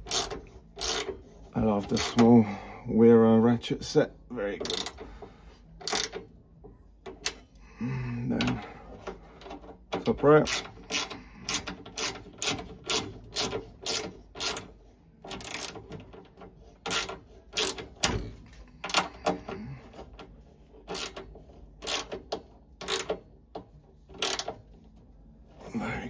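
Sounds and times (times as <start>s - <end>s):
ratchet clicking: 0.0s - 2.3s, 4.6s - 5.1s, 5.8s - 6.3s, 9.1s - 19.5s, 20.8s - 23.3s, 24.1s - 24.7s.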